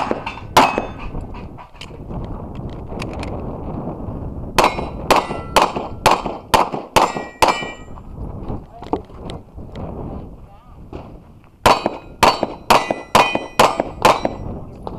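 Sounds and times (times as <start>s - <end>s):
pistol shots: 0.0s - 1.0s, 4.6s - 7.9s, 11.6s - 14.4s
steel target plate clanging: 0.0s - 1.8s, 4.6s - 5.6s, 7.0s - 7.9s, 11.7s - 14.5s.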